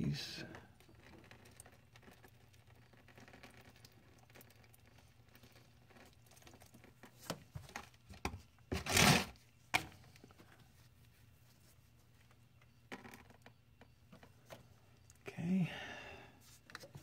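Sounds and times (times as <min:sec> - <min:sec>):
rubber gloves rustling: 0:01.0 - 0:12.6
loud scraping rustle: 0:08.7 - 0:09.4.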